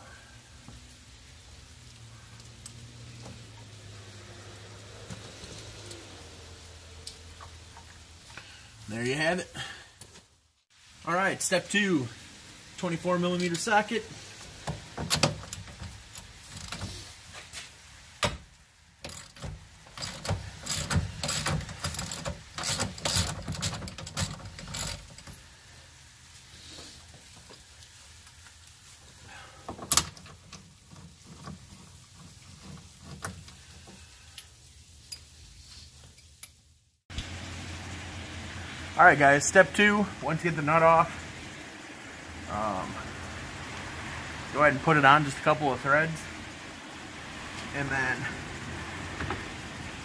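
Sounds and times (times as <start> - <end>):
ratchet clicking: 19.0 - 25.4.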